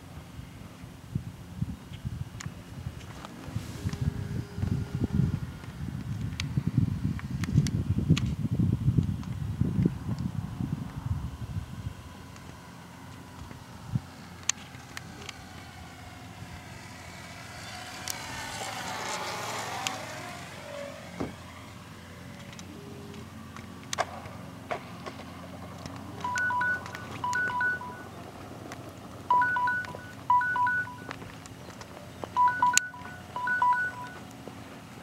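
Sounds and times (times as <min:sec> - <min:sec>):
model plane motor whine: 0:03.0 - 0:07.5, 0:10.4 - 0:24.0
two-tone electronic beeps: 0:26.2 - 0:28.1, 0:29.3 - 0:31.2, 0:32.4 - 0:34.2.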